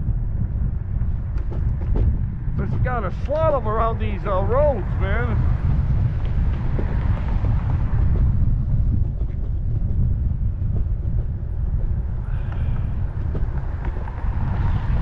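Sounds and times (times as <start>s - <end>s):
scooter wind and road rumble: 0.0s - 15.0s
wheels knocking over cracks: 0.9s - 3.5s, 5.6s - 15.0s.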